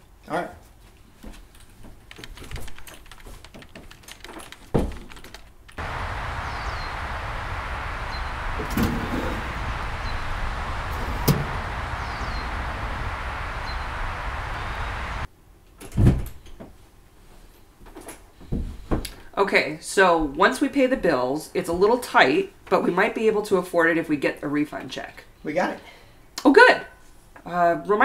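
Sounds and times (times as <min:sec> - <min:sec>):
outdoor background noise: 0:00.0 - 0:27.9
faint high chirps: 0:05.8 - 0:15.3
door clunking shut: 0:08.6 - 0:11.6.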